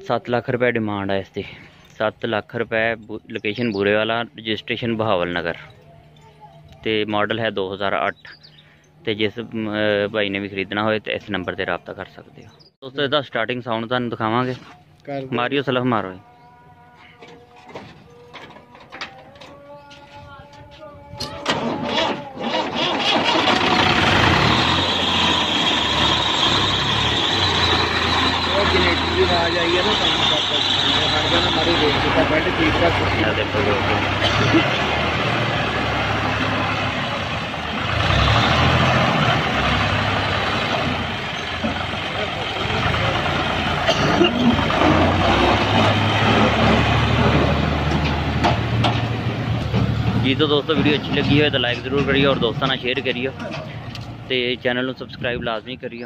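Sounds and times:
tractor diesel engine starting: 21.1s - 55.4s.

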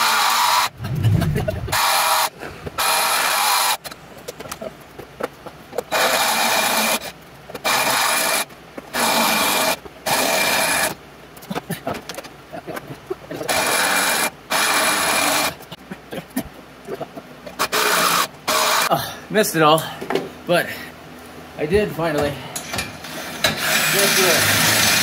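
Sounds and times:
cordless drill grinding into steel: 23.1s - 25.0s.

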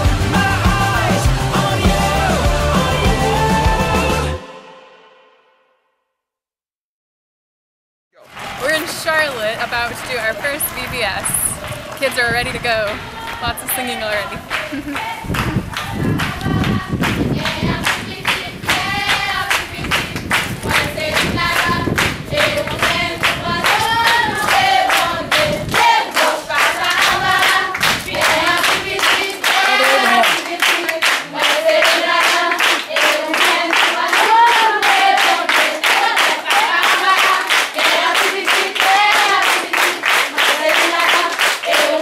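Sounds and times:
group singing unaccompanied: 0.0s - 4.7s, 12.8s - 42.0s
clapping on a steady beat: 8.2s - 42.0s.

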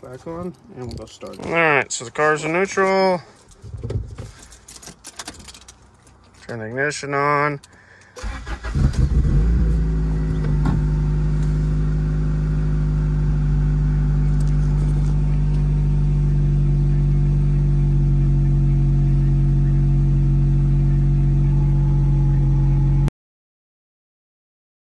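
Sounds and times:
car engine idling: 8.2s - 23.1s.

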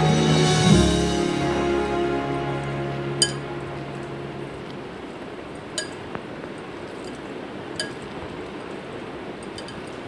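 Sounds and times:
clinks against glass: 5.8s - 6.0s, 7.8s - 8.0s, 9.5s - 9.9s.

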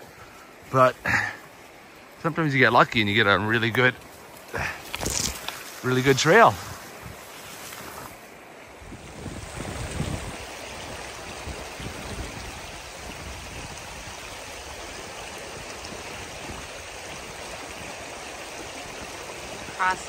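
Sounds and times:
river water rushing: 0.0s - 20.0s
wind on microphone: 6.4s - 20.0s.

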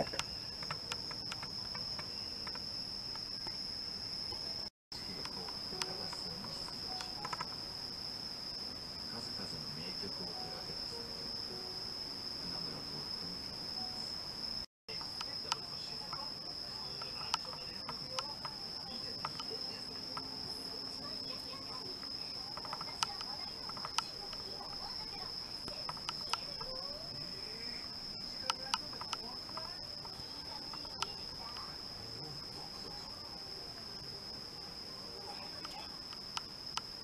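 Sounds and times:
faint clicks and taps: 0.0s - 3.6s, 5.2s - 7.6s, 21.7s - 26.9s, 28.4s - 31.7s
crickets trilling: 0.0s - 37.0s.

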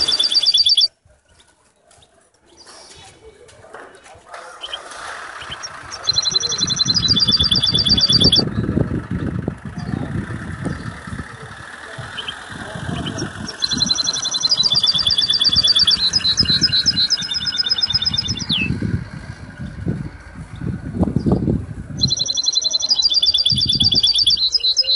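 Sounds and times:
finch singing trills: 0.0s - 0.9s, 4.5s - 24.9s
low rumble: 5.5s - 22.2s.

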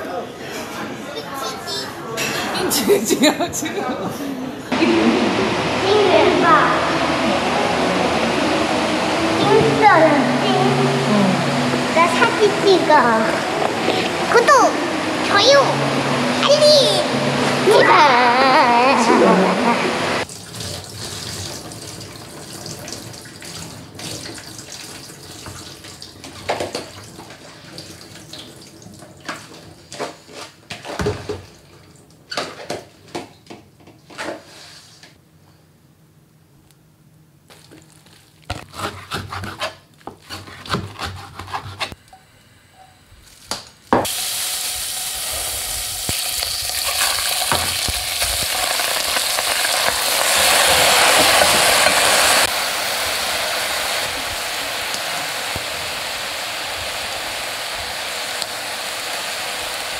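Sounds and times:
food sizzling in oil: 44.0s - 59.9s.

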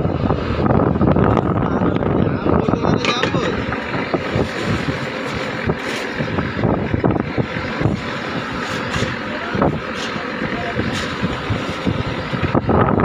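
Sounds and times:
boat engine running: 0.0s - 13.0s
wind on microphone: 0.0s - 13.0s.

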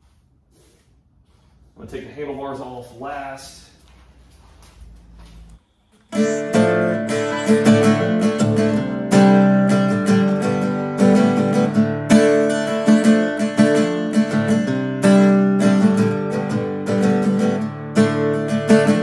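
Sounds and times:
strummed acoustic guitar: 6.1s - 19.0s.

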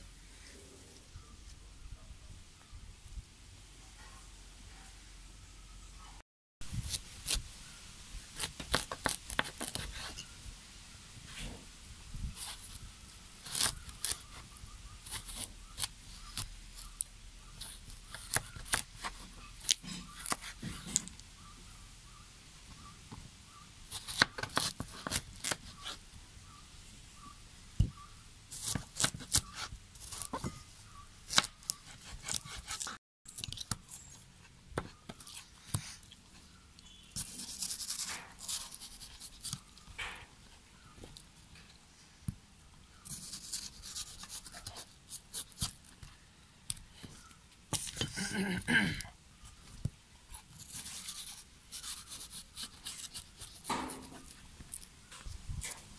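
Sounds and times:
knife cutting watermelon: 8.3s - 10.3s, 13.4s - 21.2s, 23.9s - 26.0s, 27.8s - 30.6s, 31.3s - 34.2s, 50.3s - 54.8s.

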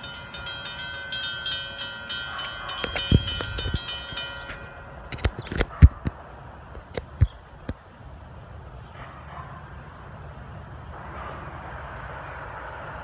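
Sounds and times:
crossing warning bell ringing: 0.0s - 5.4s.

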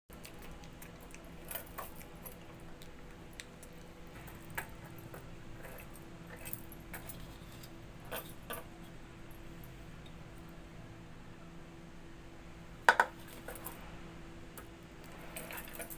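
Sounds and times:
faint low hum: 0.1s - 15.9s
clicks and taps on metal plate: 12.9s - 13.2s.

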